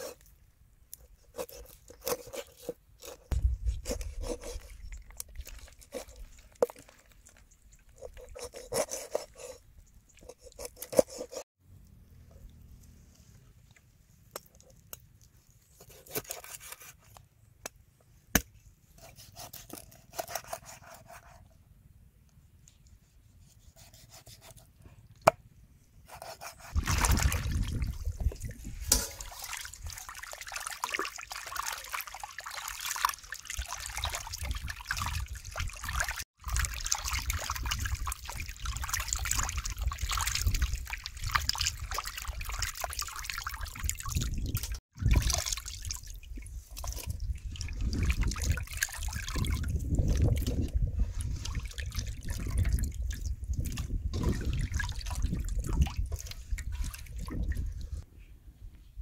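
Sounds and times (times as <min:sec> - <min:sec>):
water sloshing and splashing: 0:01.4 - 0:11.4, 0:26.6 - 0:58.0.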